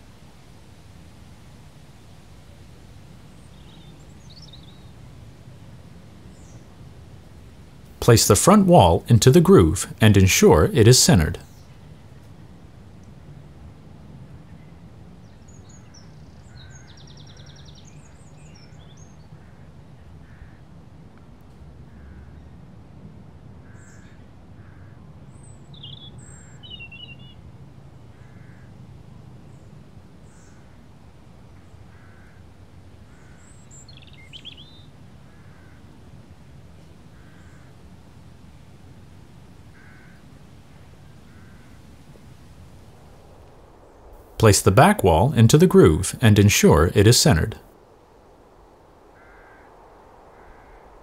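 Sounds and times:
bird calling softly: 31.6s - 32.5s, 33.1s - 36.0s, 37.1s - 37.8s, 39.7s - 41.9s, 49.2s - 50.9s.

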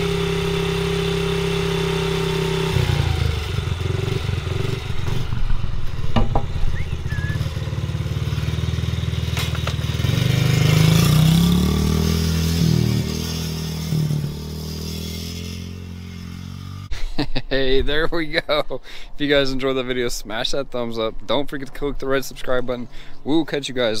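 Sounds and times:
dirt bike engine revving: 0.0s - 17.0s
sharp knocks: 6.1s - 6.8s.

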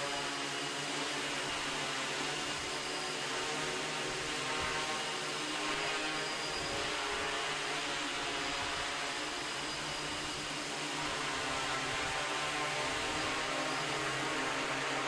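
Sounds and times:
drone propellers whirring: 0.0s - 15.0s.

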